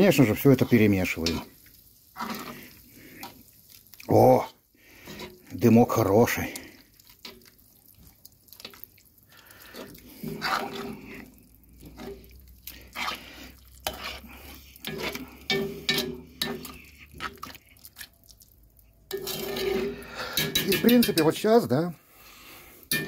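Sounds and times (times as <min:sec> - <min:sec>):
metal spoon scraping a pot: 0:00.1 - 0:03.4, 0:04.9 - 0:07.6, 0:09.6 - 0:18.1, 0:19.0 - 0:21.4.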